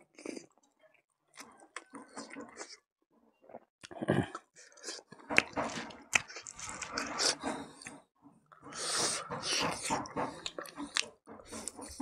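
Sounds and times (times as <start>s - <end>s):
chewing and biting meat: 8.7s - 12.0s
wet mouth sounds: 8.7s - 12.0s.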